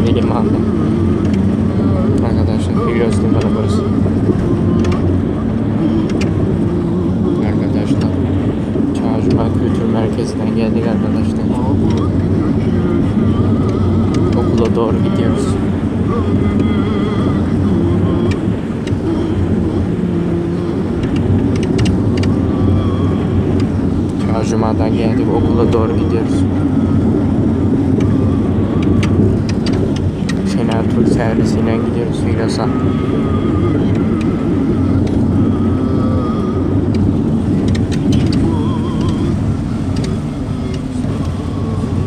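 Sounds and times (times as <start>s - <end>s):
bus engine and road drone: 0.0s - 42.0s
light rattling clicks: 21.0s - 22.3s, 28.8s - 30.5s
sharp clicks: 21.0s - 22.3s.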